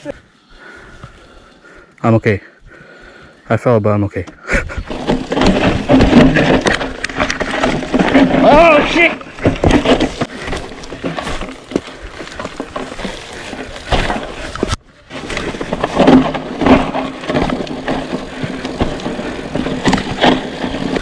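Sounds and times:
knocks and rattles over bumps: 4.2 - 21.0
bike tyre roar on dirt: 4.6 - 21.0.

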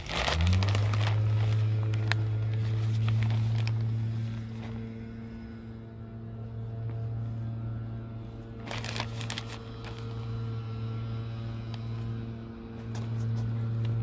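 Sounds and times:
plastic bag rustling: 0.0 - 5.1, 8.5 - 10.5
low mechanical hum: 0.0 - 14.0.

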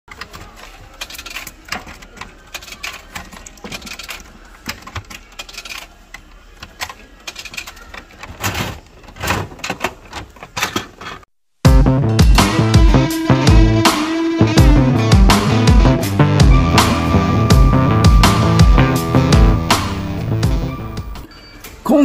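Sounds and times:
coins clinking into coin slot: 0.9 - 6.0, 6.7 - 8.8.

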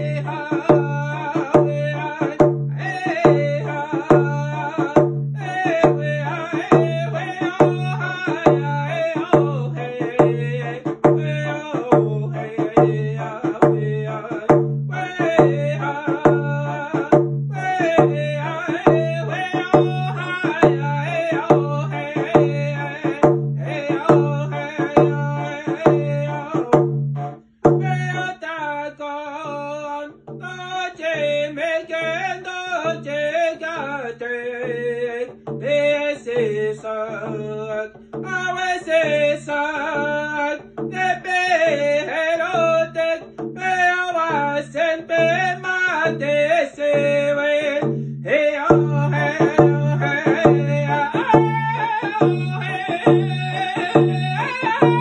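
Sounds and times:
frame drum beating: 0.0 - 28.4, 45.2 - 55.0
man singing: 0.0 - 55.0.

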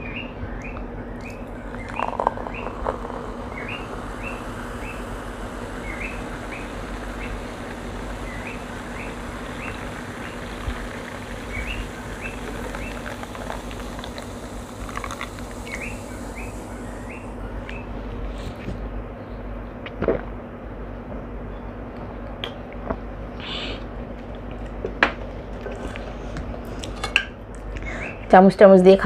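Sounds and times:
small bird chirping: 0.0 - 13.2, 15.2 - 17.9
steady low hum: 0.0 - 29.0.

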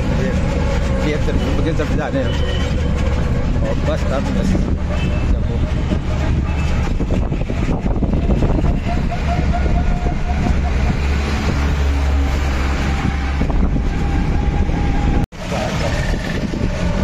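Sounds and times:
road noise: 0.0 - 17.0
vehicle engine rumble: 0.0 - 17.0.

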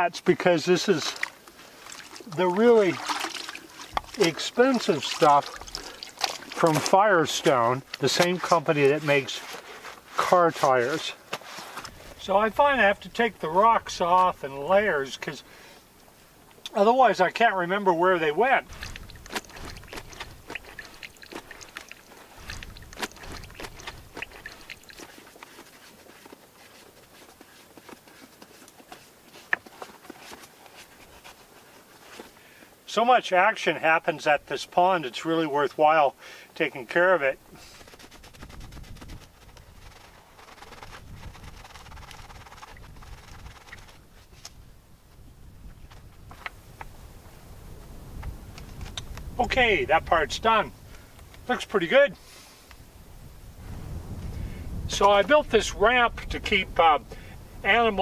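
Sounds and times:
wet cloth rustling: 0.8 - 12.7, 18.1 - 32.4, 37.4 - 44.6
stones clicking and knocking: 3.2 - 6.9, 18.7 - 30.5, 37.8 - 44.0.

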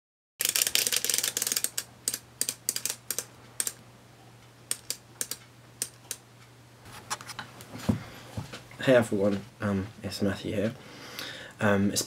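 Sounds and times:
sharp mechanical clicks: 0.4 - 3.8, 4.7 - 6.2.

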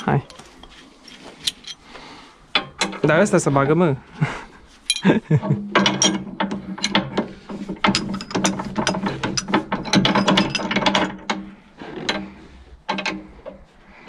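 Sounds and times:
driveshaft metallic clicking and rattling: 4.9 - 13.7.

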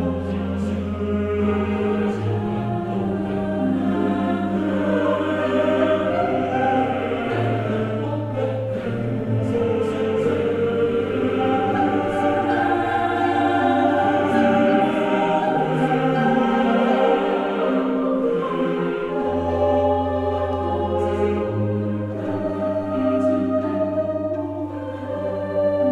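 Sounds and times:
choir singing sustained chords: 0.0 - 25.9.

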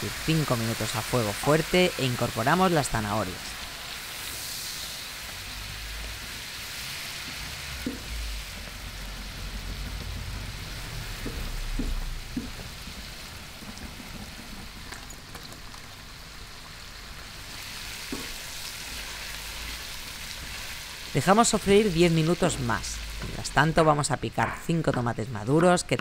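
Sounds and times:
onions sizzling and bubbling in pan: 0.0 - 26.0
spoon knocking against pan: 11.2 - 12.8.

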